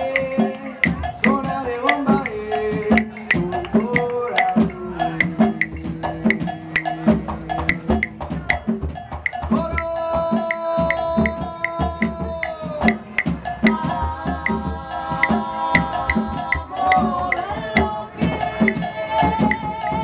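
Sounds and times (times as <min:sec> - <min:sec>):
sharp wooden stick clicks: 0:00.0 - 0:04.6
barrel drums: 0:00.0 - 0:20.0
voices singing held notes: 0:00.0 - 0:20.0.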